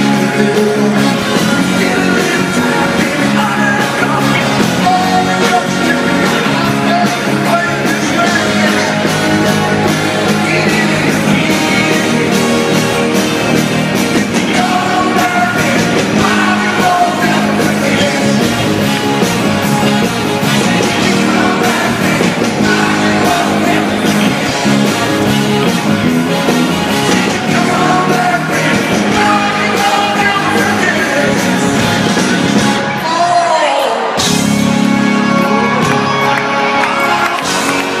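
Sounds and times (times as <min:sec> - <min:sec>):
men singing lead vocal: 0:00.0 - 0:09.0, 0:10.3 - 0:12.8, 0:14.1 - 0:18.7, 0:20.8 - 0:24.5, 0:27.3 - 0:31.7
live rock band playing: 0:00.0 - 0:38.0.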